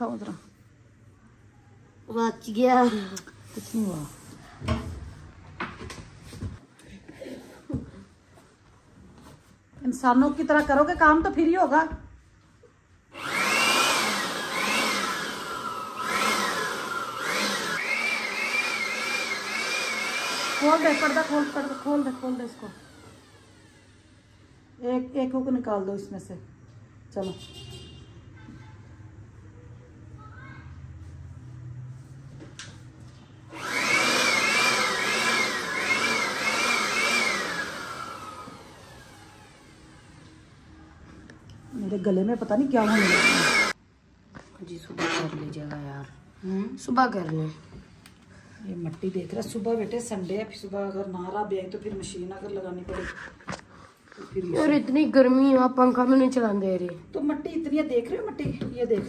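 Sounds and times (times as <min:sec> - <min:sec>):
electric air blower running: 0:13.1 - 0:24.6, 0:33.5 - 0:40.4, 0:42.7 - 0:43.8.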